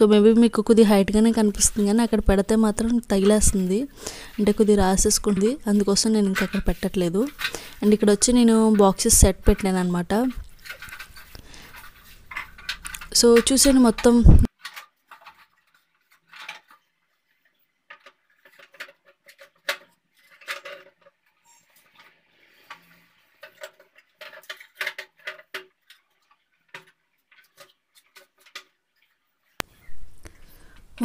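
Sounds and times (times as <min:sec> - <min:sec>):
kitchen containers clicking and knocking: 0:00.4 - 0:16.9, 0:17.9 - 0:28.8.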